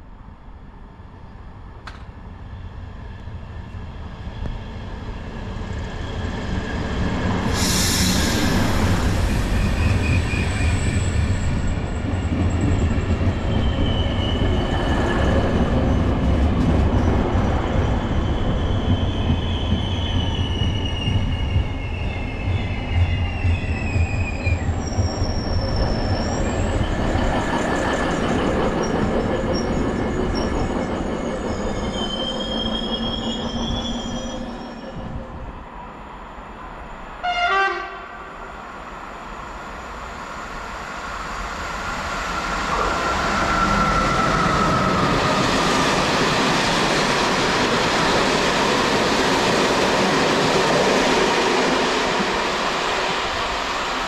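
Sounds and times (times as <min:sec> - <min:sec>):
train brakes squealing: 0:03.5 - 0:35.5, 0:36.8 - 0:54.0.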